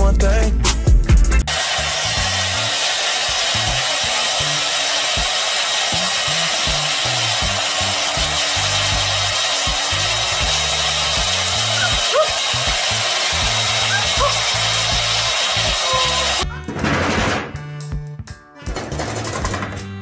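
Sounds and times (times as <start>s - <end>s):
hair dryer blowing: 1.5s - 16.4s.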